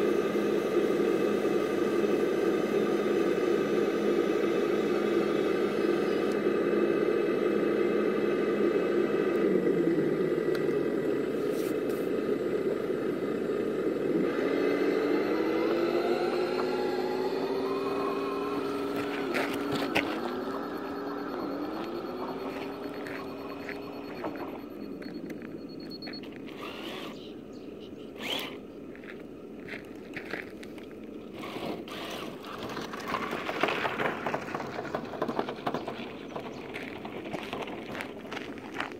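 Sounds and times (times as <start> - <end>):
motor whine: 0.0 - 33.3
toy truck running hum: 0.0 - 38.9
toy truck tyres crunching gravel: 18.5 - 20.6, 26.2 - 27.2, 28.2 - 38.9.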